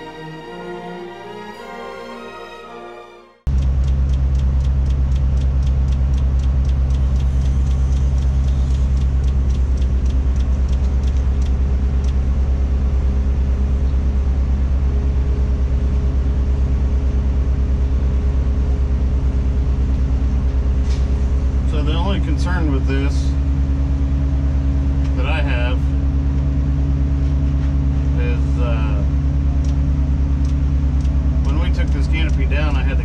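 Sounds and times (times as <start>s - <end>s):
light regular ticking: 3.5s - 13.6s, 29.0s - 33.0s
crane engine running: 3.5s - 33.0s.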